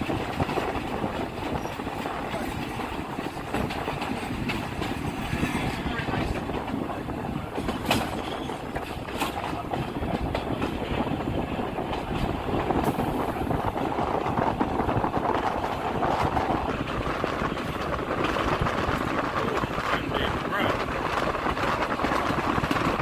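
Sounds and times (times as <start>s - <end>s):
clicks over rail joints: 0.0s - 13.0s
train wheels rumbling on rail: 0.0s - 23.0s.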